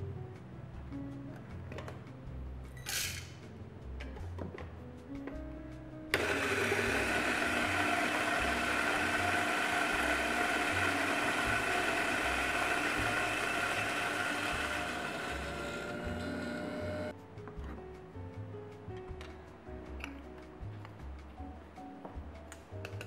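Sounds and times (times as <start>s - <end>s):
electric coffee grinder running: 6.2s - 17.1s.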